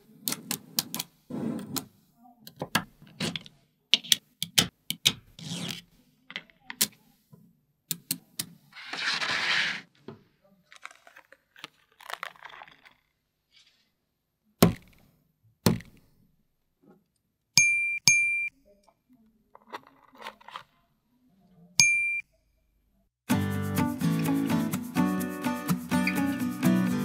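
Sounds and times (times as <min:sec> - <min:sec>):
scrape: 0:00.7 - 0:02.1, 0:08.7 - 0:09.9, 0:13.5 - 0:14.0.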